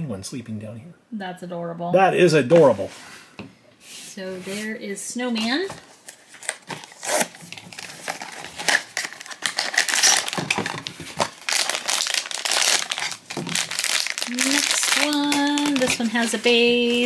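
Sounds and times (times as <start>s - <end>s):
foil bag crinkling: 6.0s - 17.0s.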